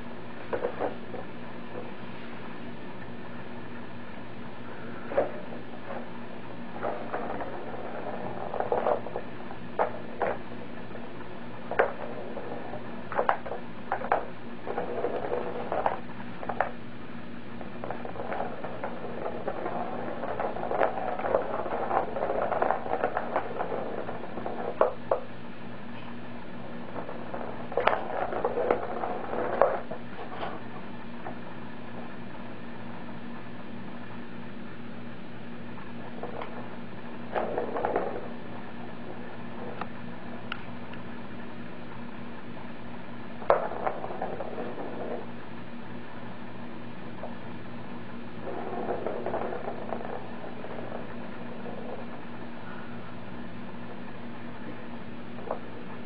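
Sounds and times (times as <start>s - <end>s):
low steady hum: 0.0s - 56.0s
ball rattling on plastic track: 0.5s - 1.9s, 4.7s - 16.8s, 17.6s - 25.3s, 26.5s - 31.5s, 35.9s - 40.6s, 43.4s - 45.4s, 48.4s - 53.0s, 53.8s - 56.0s.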